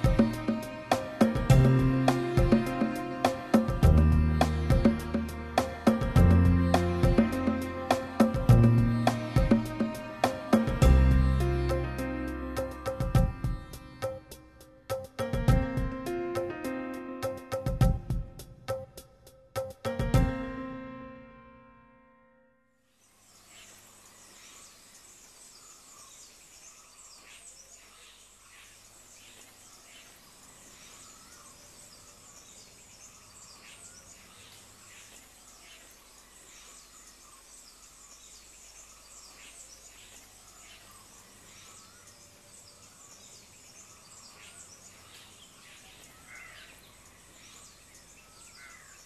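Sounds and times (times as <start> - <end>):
birds chirping: 0.0 - 16.6, 23.0 - 49.0
insect hum: 22.9 - 49.0.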